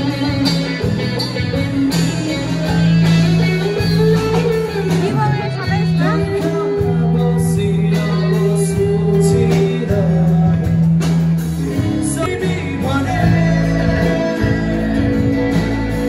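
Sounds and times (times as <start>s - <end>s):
person singing: 0.0s - 16.0s
strummed guitars: 0.0s - 16.0s.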